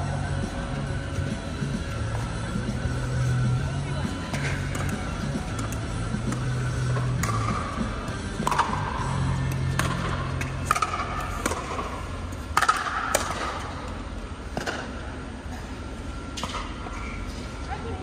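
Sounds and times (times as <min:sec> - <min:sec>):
steady low hum: 0:00.0 - 0:18.0
paddles hitting plastic ball: 0:08.4 - 0:08.9, 0:12.5 - 0:13.6.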